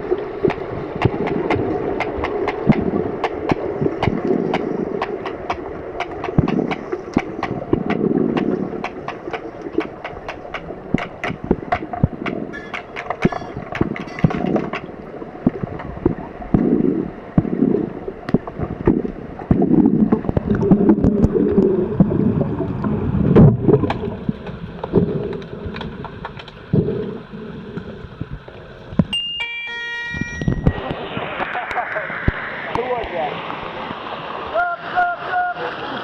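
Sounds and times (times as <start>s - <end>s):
underwater bubbling and water rush: 0.0s - 29.2s, 30.4s - 36.0s
underwater clicks and knocks: 0.4s - 27.0s, 27.8s - 29.2s, 30.4s - 32.8s
high buzzing tone: 29.2s - 31.2s.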